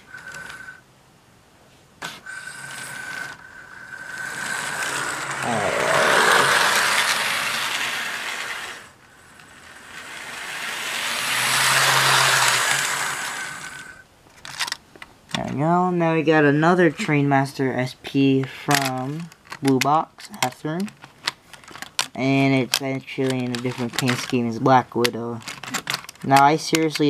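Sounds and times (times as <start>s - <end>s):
model train motor and gears: 0.0s - 0.8s, 2.1s - 14.0s, 21.7s - 27.0s.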